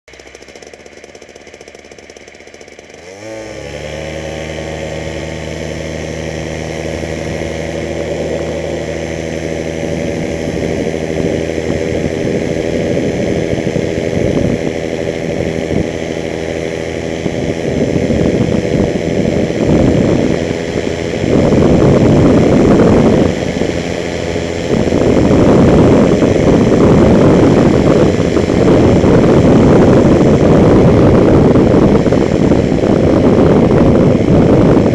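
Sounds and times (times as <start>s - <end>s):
microlight engine and propeller: 0.1s - 34.9s
wind buffeting camera: 3.8s - 34.9s.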